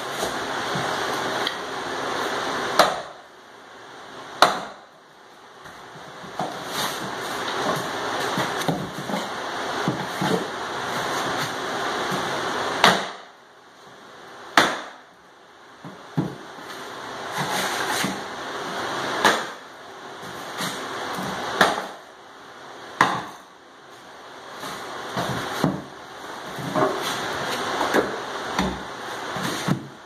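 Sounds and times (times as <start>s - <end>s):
sledgehammer hitting wooden wedges: 2.7s - 3.2s, 4.4s - 4.9s, 11.2s - 13.3s, 14.5s - 15.0s, 19.2s - 19.6s, 20.6s - 22.0s, 23.0s - 23.4s, 25.1s - 25.9s.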